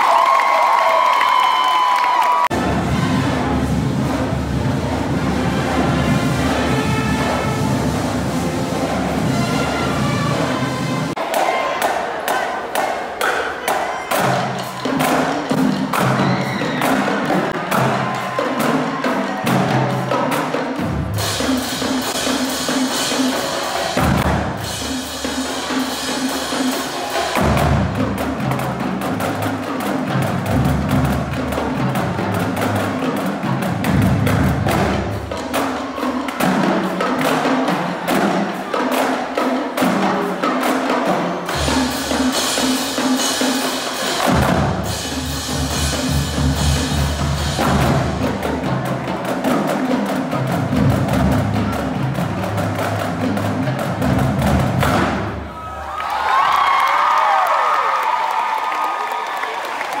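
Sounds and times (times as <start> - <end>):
marching bass drums: 2.5 - 11.2, 41.5 - 55.5
rapid snare drum strikes: 2.5 - 55.5.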